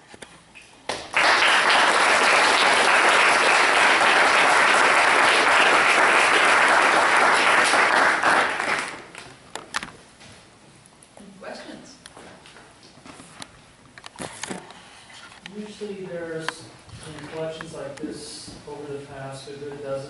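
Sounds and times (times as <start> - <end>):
audience applauding: 0.9 - 9.2.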